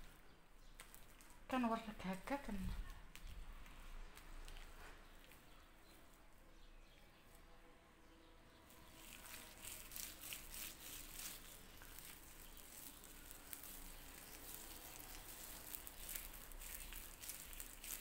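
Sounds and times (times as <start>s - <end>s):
wet gel squelching in hair: 8.7s - 18.0s.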